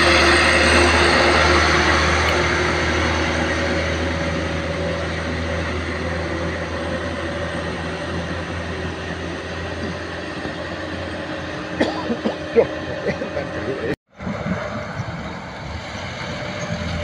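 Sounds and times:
truck engine pulling away: 0:00.0 - 0:17.0.

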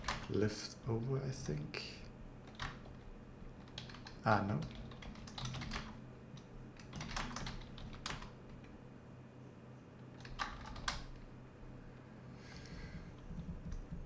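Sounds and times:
computer keyboard keystrokes: 0:00.0 - 0:00.3, 0:02.4 - 0:03.0, 0:03.6 - 0:08.7, 0:10.1 - 0:11.2, 0:13.2 - 0:14.0.

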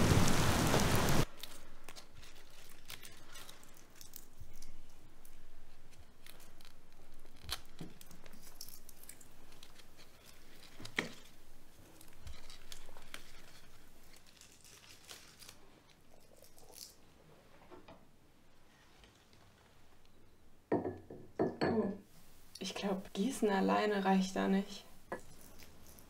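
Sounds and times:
dried leaves crackling and rustling: 0:00.0 - 0:17.0, 0:22.2 - 0:26.0.

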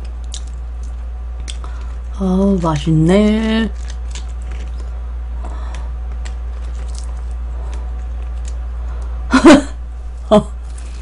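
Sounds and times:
steady low hum: 0:00.0 - 0:11.0
chicken pulled apart and eaten: 0:03.7 - 0:08.7.

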